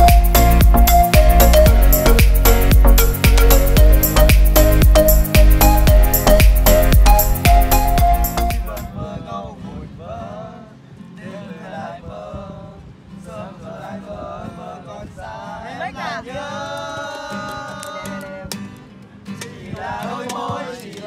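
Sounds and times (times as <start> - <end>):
men singing: 13.3 - 18.5, 19.4 - 21.0
strummed acoustic guitar: 18.0 - 21.0.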